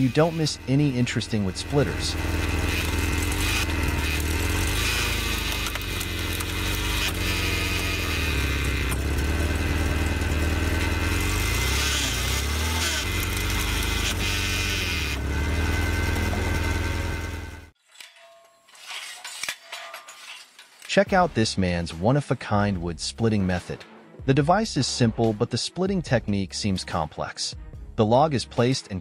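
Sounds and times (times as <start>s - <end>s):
log splitter engine running: 0.0s - 17.7s.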